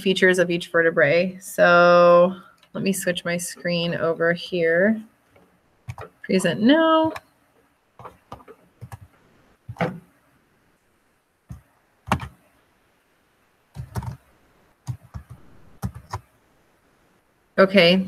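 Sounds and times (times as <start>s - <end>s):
mouse and keyboard clicks: 5.4s - 6.2s.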